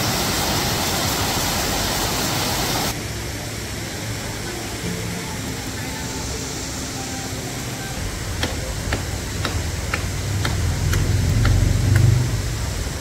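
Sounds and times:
river water rushing over rocks: 0.0s - 13.0s.

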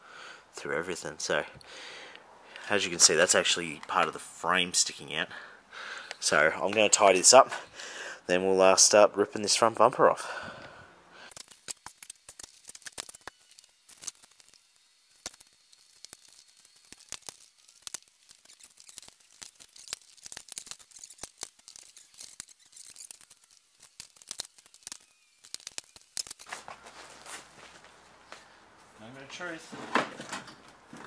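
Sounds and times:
hand tools clicking on metal: 11.3s - 14.6s.

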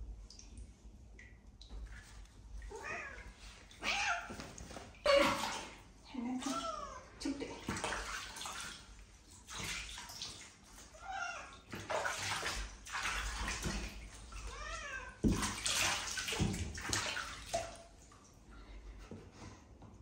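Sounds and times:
water splashing in bathtub: 0.0s - 20.0s
cat meowing: 14.4s - 15.2s.

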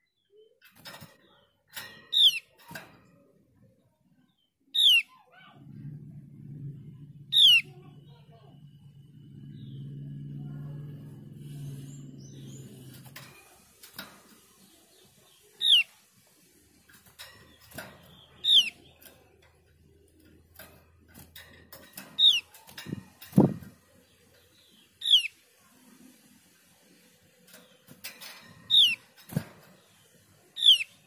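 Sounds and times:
low hum: 5.6s - 13.3s
bird giving sharp calls: 7.3s - 7.7s
bird hopping in wire cage: 9.8s - 31.0s.

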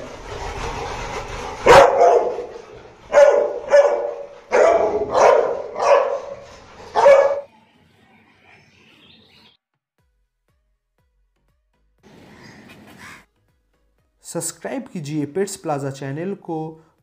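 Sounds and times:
dogs barking loudly: 1.5s - 7.5s.

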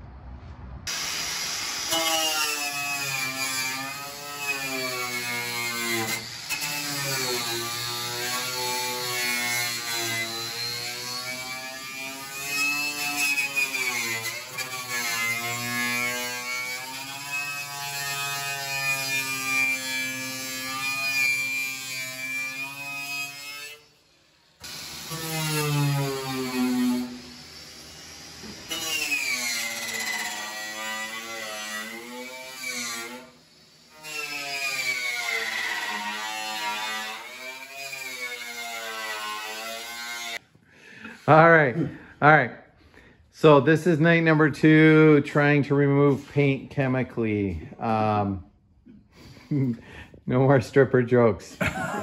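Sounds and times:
electric grinder on sheet metal: 0.9s - 40.4s.

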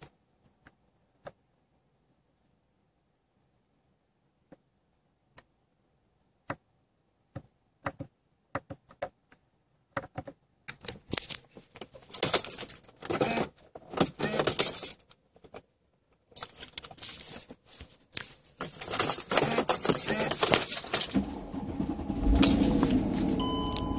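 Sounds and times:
keys jangling: 12.1s - 12.9s, 14.5s - 15.0s, 18.7s - 21.2s
low steady rumble: 21.0s - 23.9s.

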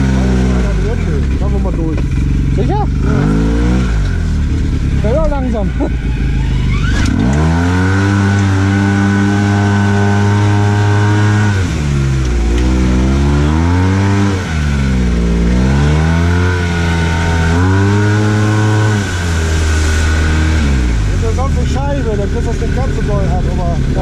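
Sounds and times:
engine revving: 0.0s - 24.0s
vehicle splashing through water: 5.0s - 24.0s.

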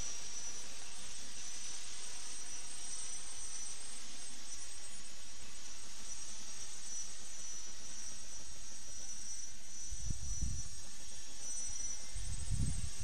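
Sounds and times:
high-pitched buzz: 0.0s - 13.0s
wind buffeting microphone: 10.0s - 10.8s, 12.2s - 13.0s.

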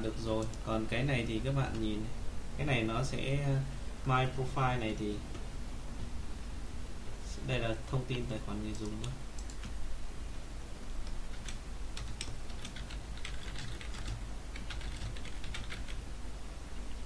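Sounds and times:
low steady hum: 0.0s - 17.0s
keyboard typing: 8.7s - 9.8s, 11.0s - 16.0s.

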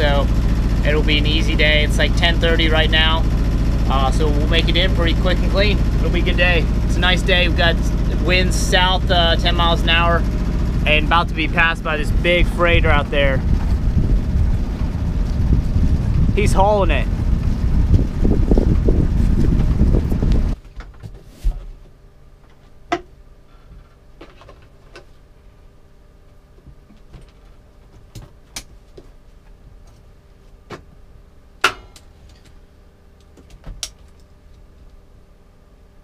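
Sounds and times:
wind buffeting microphone: 10.6s - 20.6s.

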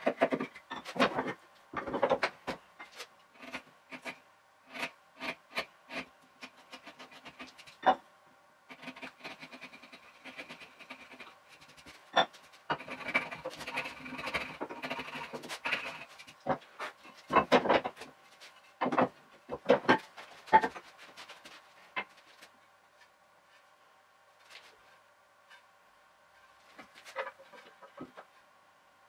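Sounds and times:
scratchy rasping on wood: 3.3s - 7.7s, 8.7s - 11.9s, 12.7s - 17.0s.

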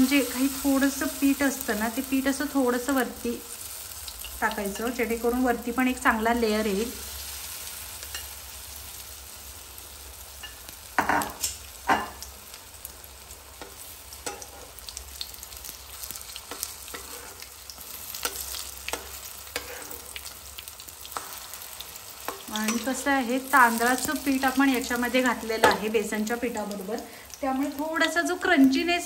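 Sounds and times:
potato slices sizzling in oil: 0.0s - 29.0s
spatula scraping pan: 13.6s - 14.8s, 16.3s - 20.3s.

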